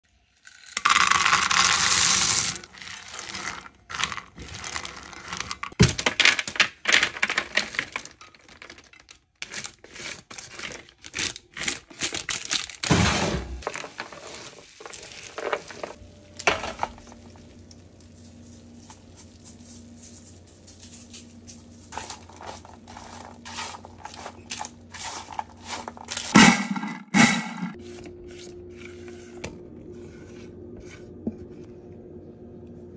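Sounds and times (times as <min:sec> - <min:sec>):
parchment paper crinkling: 0:02.8 - 0:12.9, 0:16.9 - 0:26.4
low steady hum: 0:15.2 - 0:32.9
peanuts rattling: 0:17.8 - 0:27.4.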